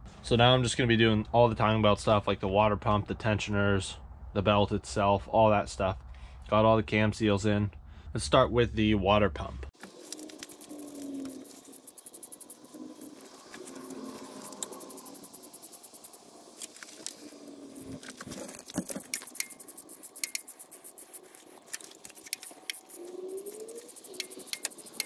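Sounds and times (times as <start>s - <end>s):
tool scraping metal: 17.8s - 25.0s.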